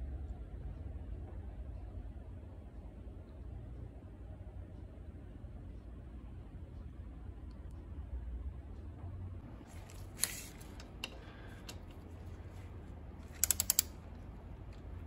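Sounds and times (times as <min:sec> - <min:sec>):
hand ratchet clicking: 0:13.2 - 0:14.1.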